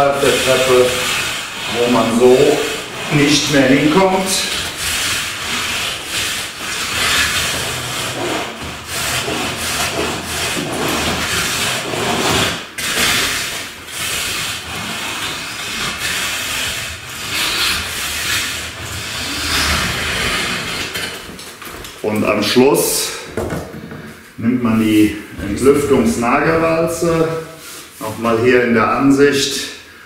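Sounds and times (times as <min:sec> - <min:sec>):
rake tines scraping wet compound: 0:00.0 - 0:21.0.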